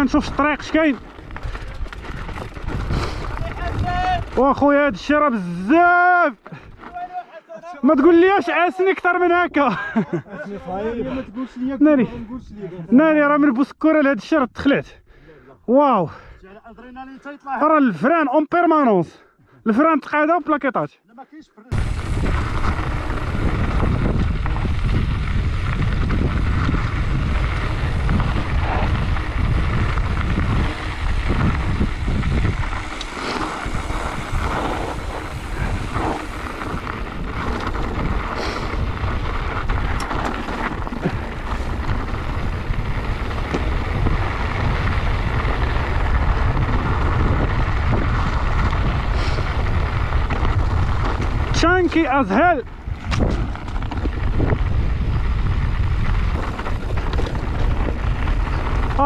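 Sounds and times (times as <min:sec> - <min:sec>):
wind buffeting microphone: 0:00.0 - 0:05.1, 0:21.7 - 0:59.0
bike rattling over rocks: 0:00.0 - 0:05.3, 0:21.7 - 0:59.0.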